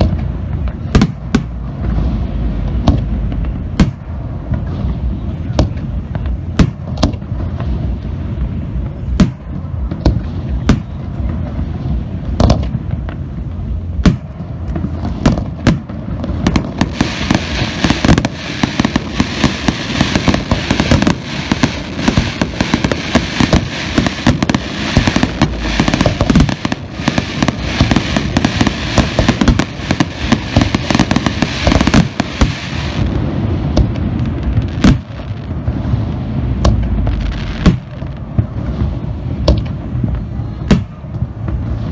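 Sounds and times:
firework shells booming: 0.0 - 7.4, 12.3 - 13.2, 14.0 - 41.6
firework crackling: 0.0 - 41.9.

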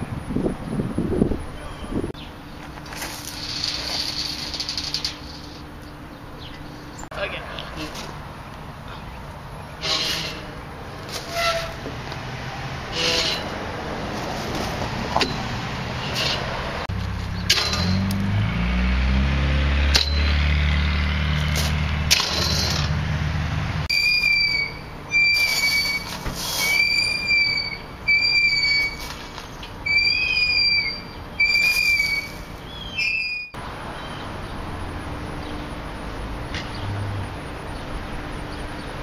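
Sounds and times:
metal swing squeaking: 2.6 - 7.1, 8.9 - 12.1, 12.8 - 18.2, 19.9 - 23.0, 23.9 - 34.3.

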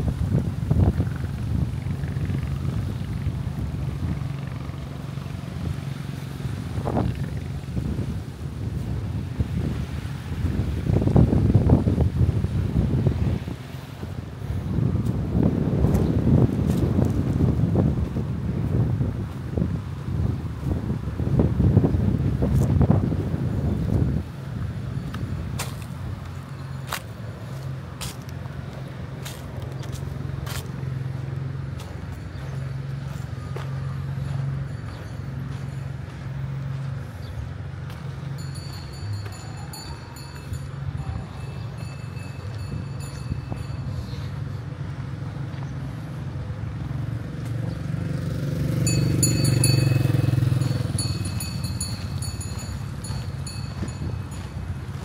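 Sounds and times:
vehicle engine hum: 0.0 - 55.0.

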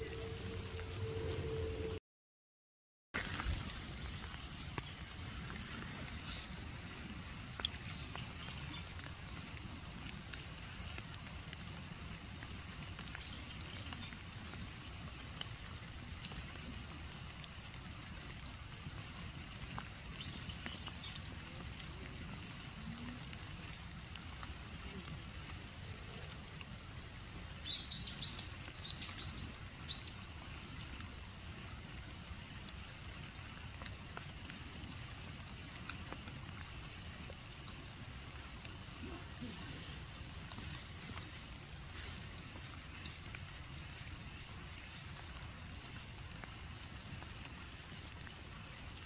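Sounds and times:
light rain ticking: 0.0 - 2.0, 3.2 - 49.0
steady low rumble: 0.0 - 2.0.

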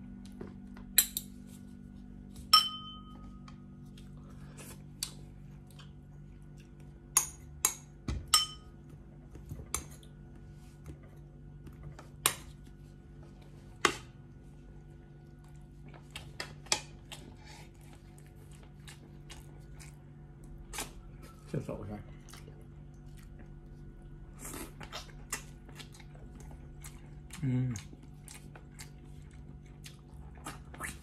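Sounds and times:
steady low hum: 0.0 - 31.0
cutlery clinking on ceramic bowls: 2.5 - 3.4, 7.2 - 8.7.

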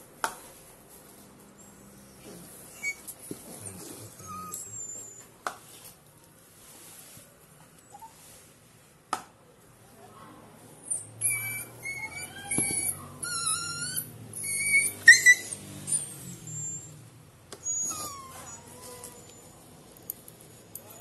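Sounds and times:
dog whining: 1.6 - 5.4, 10.9 - 20.0.

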